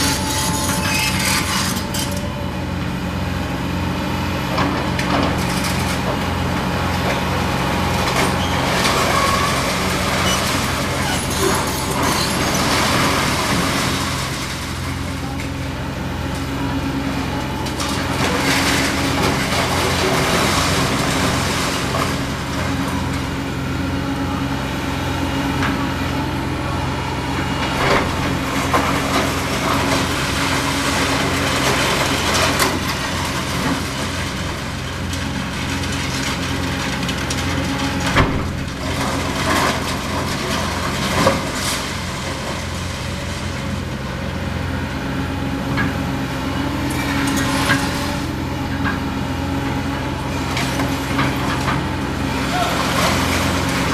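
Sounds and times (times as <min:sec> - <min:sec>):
excavator diesel engine running: 0:00.0 - 0:53.9
crunching debris: 0:04.6 - 0:16.5, 0:17.2 - 0:23.4, 0:27.6 - 0:44.4, 0:50.2 - 0:53.9
cracks and bangs of breaking material: 0:28.7 - 0:43.4.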